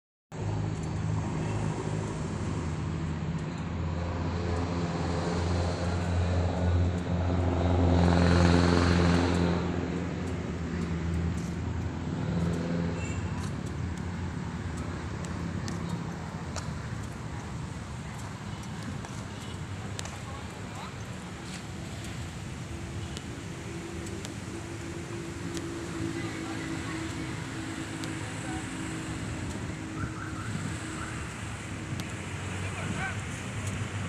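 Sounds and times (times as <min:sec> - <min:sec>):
vehicle passing: 0:00.4 - 0:34.0
vehicle engine running: 0:02.0 - 0:30.6.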